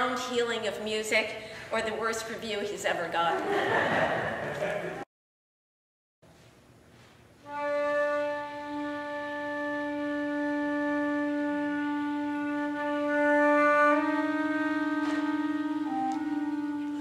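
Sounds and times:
flute and clarinet duo: 7.5 - 17.0.

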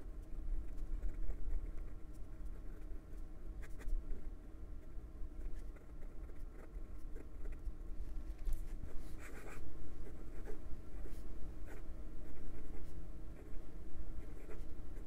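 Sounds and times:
fountain pen scratching on paper: 5.4 - 7.7, 8.5 - 13.6, 14.2 - 15.0.

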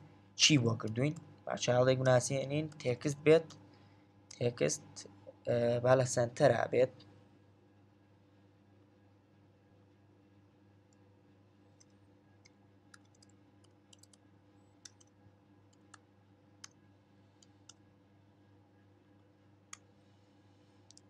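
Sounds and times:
low steady hum: 0.0 - 21.0
computer keyboard typing: 11.8 - 14.2, 14.8 - 16.0.

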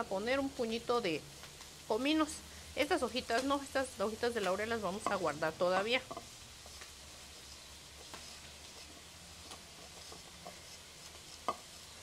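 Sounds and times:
faint sizzling from hot griddle: 0.0 - 12.0.

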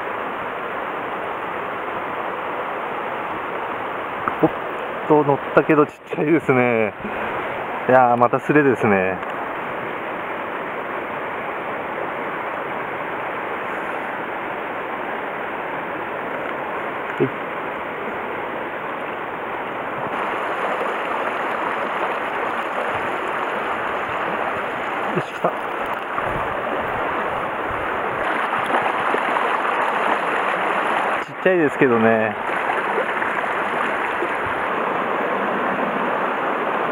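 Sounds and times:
stream rushing over stones: 0.0 - 36.9.

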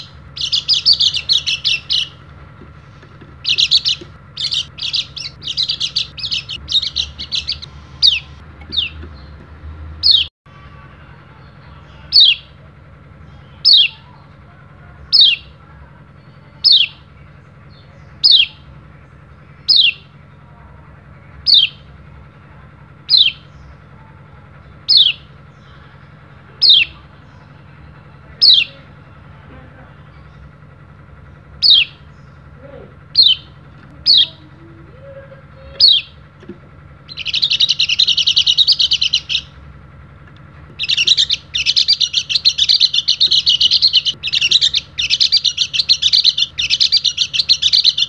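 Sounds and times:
bird short downward-sliding calls: 0.0 - 2.2, 2.9 - 9.3, 19.6 - 20.0, 31.6 - 32.3, 33.1 - 36.2, 37.1 - 39.6, 40.8 - 48.0
bird twittering chirps: 0.0 - 10.3, 11.9 - 12.6, 13.2 - 14.2, 15.0 - 15.6, 16.2 - 20.4, 21.3 - 22.1, 23.0 - 24.0, 24.6 - 48.0.

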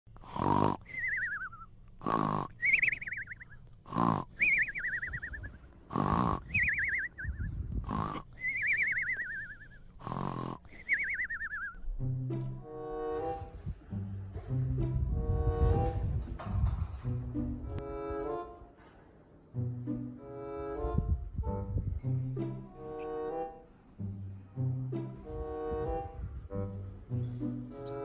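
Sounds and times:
cartoon snoring with whistle: 0.2 - 11.8
bowed string music: 11.8 - 18.8, 19.5 - 28.0.

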